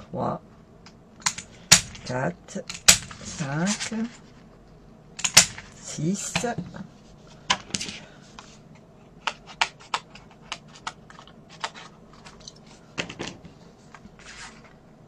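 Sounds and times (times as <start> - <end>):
paper and punch clicks and taps: 1.2 - 2.0, 5.2 - 5.7, 9.2 - 11.9.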